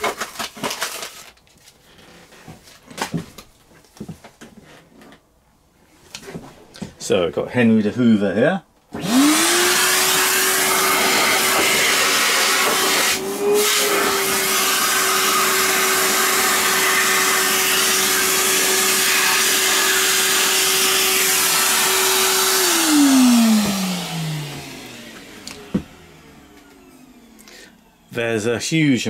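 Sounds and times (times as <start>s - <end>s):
vacuum cleaner running: 8.9s - 28.9s
motor winding down: 9.0s - 28.2s.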